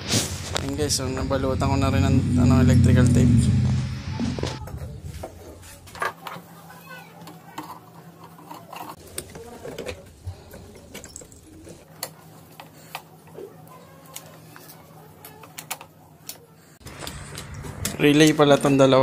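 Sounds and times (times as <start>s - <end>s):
clicks and rattles of wiring: 7.2s - 13.1s, 14.0s - 19.0s.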